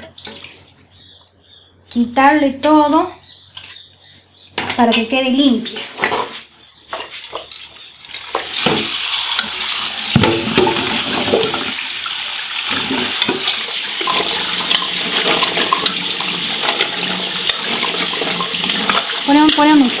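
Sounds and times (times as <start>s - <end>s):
tap water running into a pot: 7.5s - 20.0s
hands stirring cubes in water: 12.7s - 20.0s.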